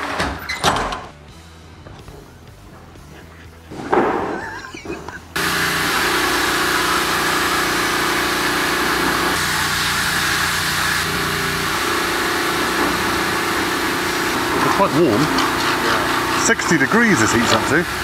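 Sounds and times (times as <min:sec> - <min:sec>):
fluid spray hissing: 0:05.4 - 0:18.0
pump motor hum: 0:05.4 - 0:18.0.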